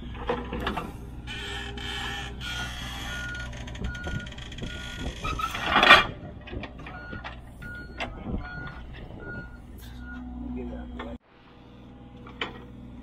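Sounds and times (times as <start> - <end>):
engine running: 0.0 - 13.0
backup alarm beeping: 3.0 - 5.1, 6.8 - 10.4
scattered knocks: 3.5 - 9.5.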